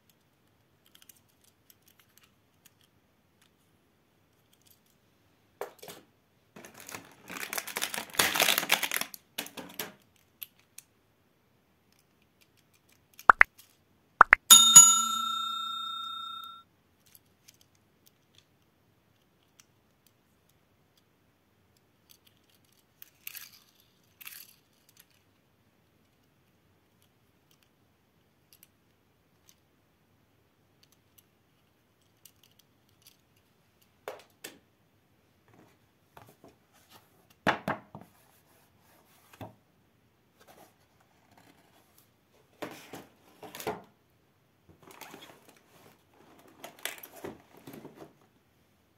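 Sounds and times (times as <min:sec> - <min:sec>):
toy car clicks and scrapes: 0:00.1 - 0:03.5, 0:22.0 - 0:25.4, 0:30.8 - 0:33.5.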